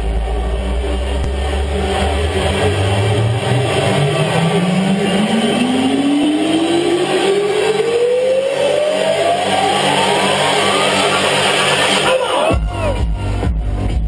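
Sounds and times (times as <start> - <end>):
dense noisy wash: 0.0 - 12.6
rising synth riser tone: 0.0 - 12.6.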